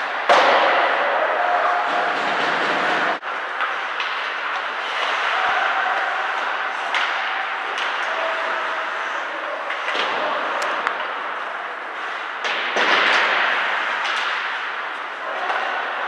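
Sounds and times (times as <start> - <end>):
puck and sticks knocking boards: 0.0 - 1.1, 1.9 - 8.6, 9.6 - 11.3, 12.3 - 16.0
arena crowd noise: 0.0 - 16.0.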